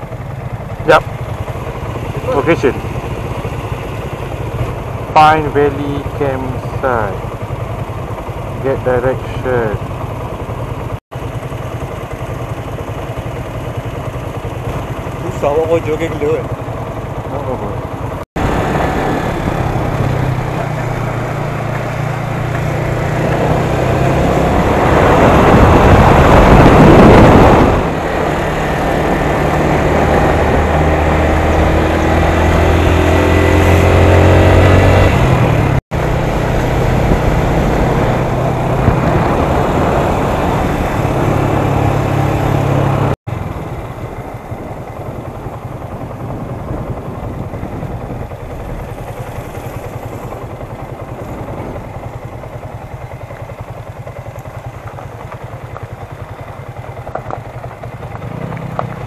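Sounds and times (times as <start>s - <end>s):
motorcycle engine accelerating: 0.0s - 59.0s
wind on microphone: 23.2s - 52.3s.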